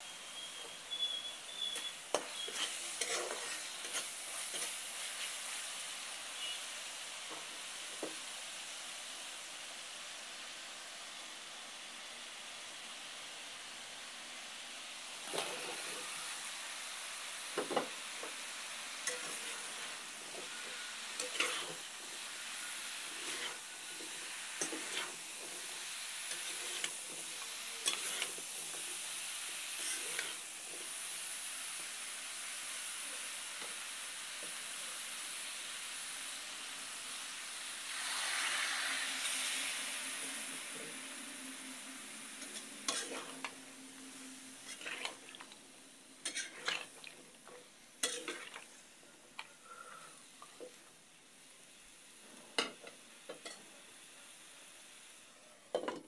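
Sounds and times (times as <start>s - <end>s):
vegetables sizzling in oil: 0.0s - 56.0s
spatula scraping metal pot: 1.7s - 4.7s, 19.0s - 21.8s, 23.0s - 25.6s, 26.3s - 27.2s, 27.8s - 28.4s, 29.8s - 30.4s, 42.4s - 43.5s, 44.6s - 45.4s, 46.2s - 46.9s.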